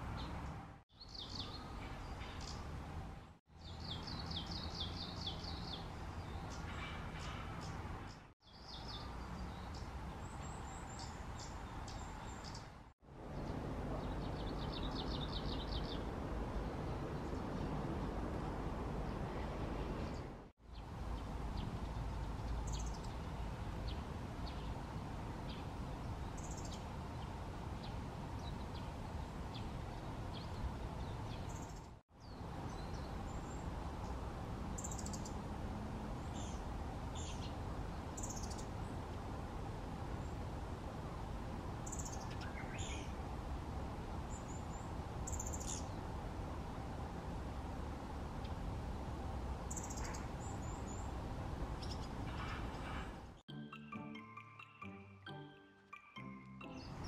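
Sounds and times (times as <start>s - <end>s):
bird chirping and twittering: 0.2s - 2.7s, 3.6s - 12.8s, 13.4s - 17.7s, 20.0s - 24.7s, 25.5s - 28.9s, 34.8s - 35.4s, 41.8s - 43.2s, 44.3s - 46.0s, 49.7s - 51.1s, 51.8s - 53.0s.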